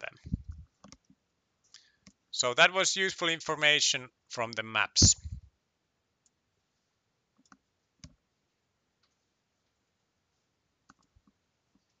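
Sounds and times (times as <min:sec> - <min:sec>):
faint computer mouse clicks: 0:00.8 - 0:02.2, 0:07.4 - 0:08.2, 0:10.9 - 0:12.0.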